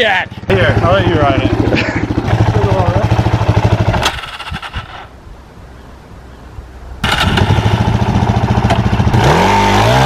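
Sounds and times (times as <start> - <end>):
motorcycle engine thumping: 0.6 - 5.1, 7.0 - 9.2.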